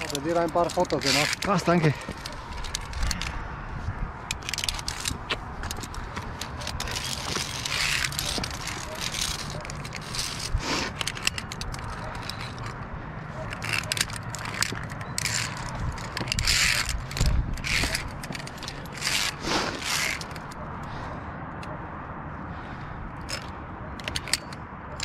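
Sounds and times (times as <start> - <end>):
carabiners clicking on steel cable: 0.0 - 3.4, 4.2 - 21.8, 23.1 - 25.0.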